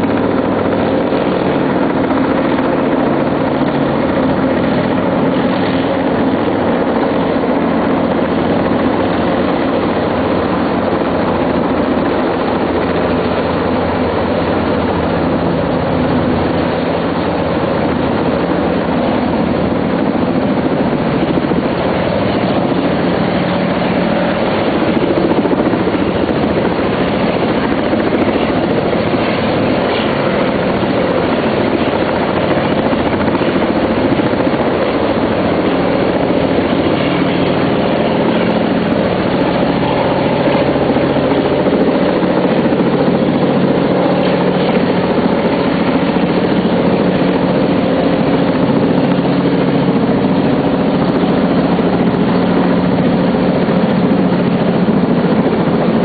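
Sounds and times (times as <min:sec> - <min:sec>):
helicopter rotor and engine drone: 0:00.0 - 0:56.0.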